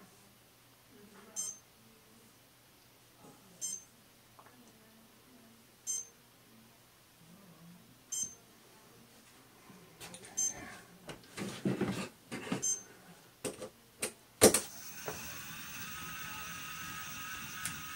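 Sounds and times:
short high electronic beep: 1.4s - 1.6s.

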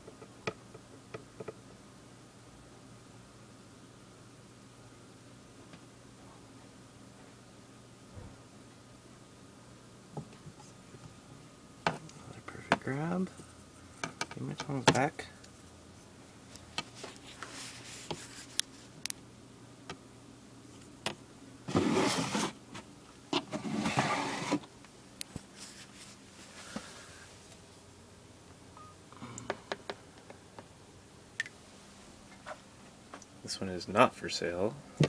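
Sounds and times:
plastic tub scraping: 21.7s - 22.6s, 23.4s - 24.6s.

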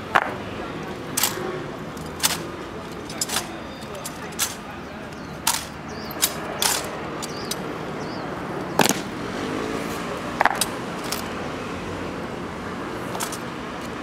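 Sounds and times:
rifles clacking: 0.1s - 7.7s, 8.8s - 9.1s, 10.4s - 11.4s, 13.1s - 14.0s.

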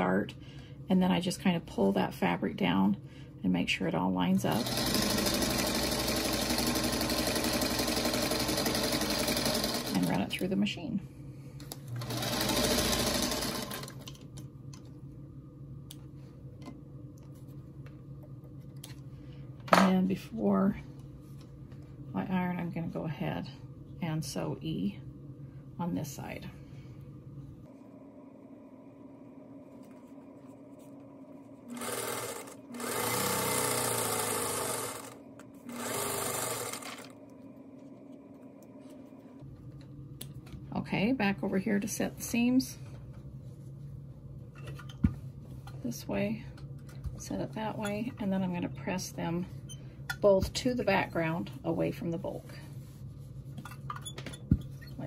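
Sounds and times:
sewing machine stitching: 4.5s - 10.2s, 12.0s - 14.0s, 31.7s - 37.1s.

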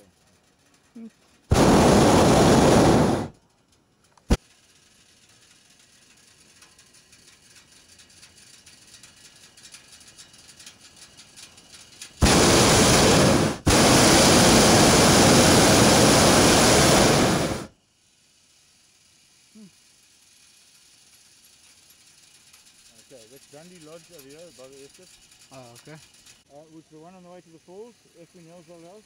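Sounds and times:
propane burner roaring: 1.4s - 3.4s, 11.5s - 17.8s.

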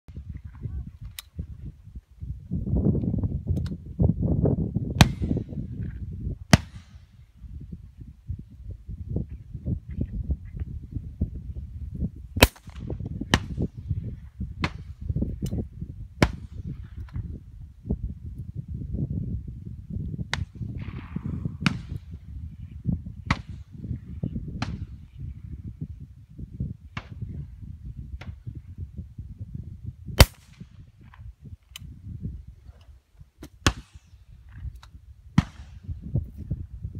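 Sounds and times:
shotgun shots: 12.4s - 13.6s, 30.2s - 30.7s.

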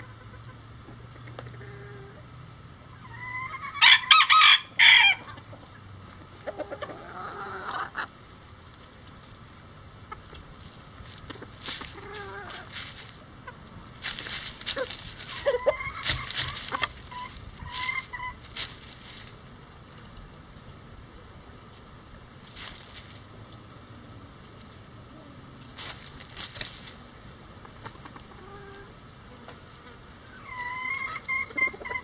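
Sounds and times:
chickens clucking: 0.0s - 32.0s
rooster crowing: 3.0s - 5.4s, 15.2s - 18.4s.

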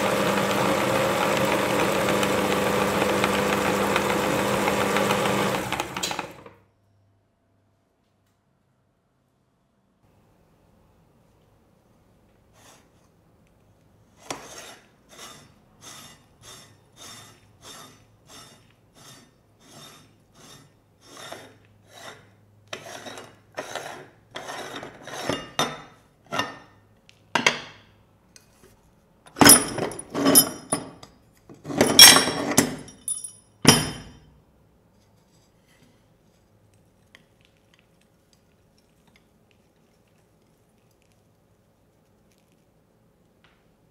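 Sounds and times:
metal ring scraping: 14.2s - 25.6s.

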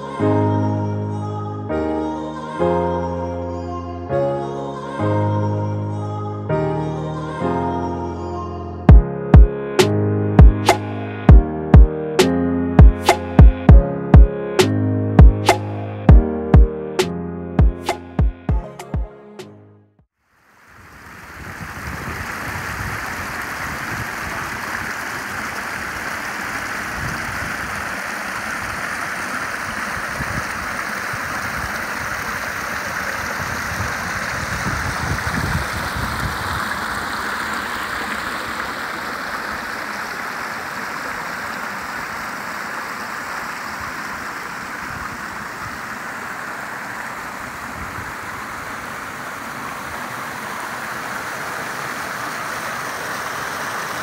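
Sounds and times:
creek water splashing over rocks: 20.3s - 54.0s.

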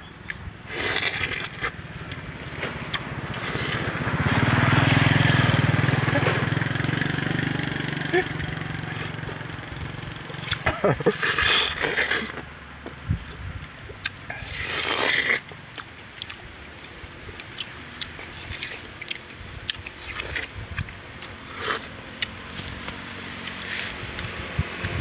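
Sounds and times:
wet crunches of biting fruit: 0.2s - 4.0s, 10.4s - 12.5s, 13.2s - 16.5s, 17.4s - 24.3s.

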